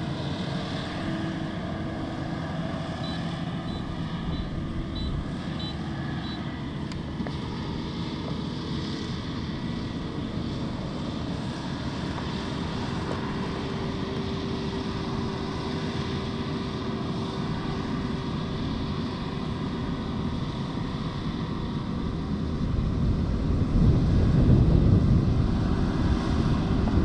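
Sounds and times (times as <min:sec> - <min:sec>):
diesel engine drone: 0:00.0 - 0:27.0
machinery whine: 0:00.0 - 0:27.0.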